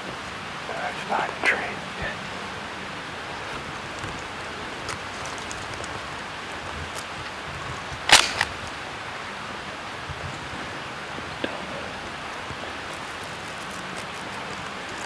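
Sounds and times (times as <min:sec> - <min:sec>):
gunshot echo: 0:08.1 - 0:08.5
shotgun shot: 0:08.1 - 0:08.5.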